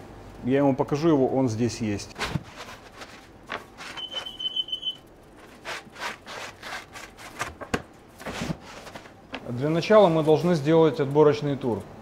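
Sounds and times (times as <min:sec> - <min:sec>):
bread scraping on wire rack: 0:02.2 - 0:04.8, 0:05.4 - 0:07.5
high beeping tone: 0:04.0 - 0:05.0.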